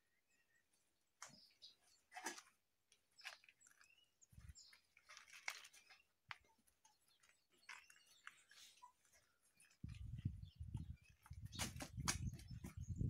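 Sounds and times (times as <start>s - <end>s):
small animals chirping and squeaking: 3.1s - 13.0s.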